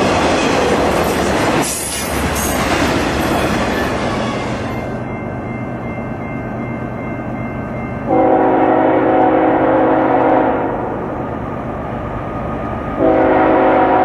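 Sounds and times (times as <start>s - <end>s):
train wheel and rail noise: 0.0s - 14.0s
locomotive air horn chord: 8.1s - 11.0s, 13.0s - 14.0s.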